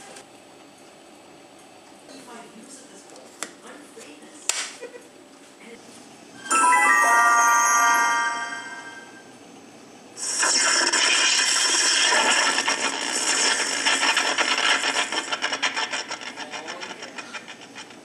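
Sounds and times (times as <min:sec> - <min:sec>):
electric crackling buzz: 0:10.2 - 0:16.5.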